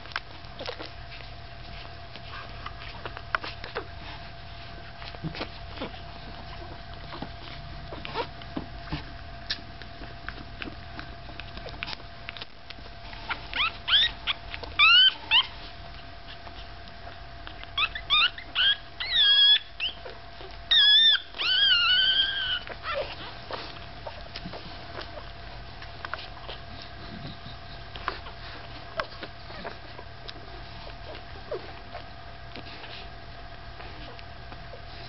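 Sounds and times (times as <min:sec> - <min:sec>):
puppy squealing: 0:13.1 - 0:15.6, 0:16.2 - 0:25.5, 0:26.2 - 0:32.1.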